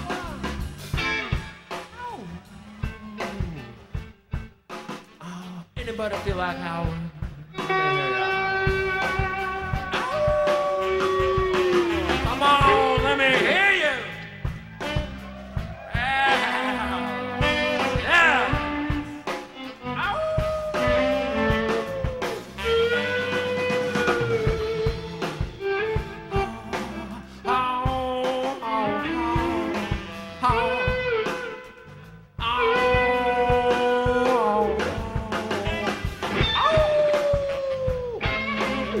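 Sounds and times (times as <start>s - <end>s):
bass guitar: 0.0s - 39.0s
drums: 0.0s - 39.0s
electric lead guitar bending notes: 7.3s - 37.0s, 38.0s - 39.0s.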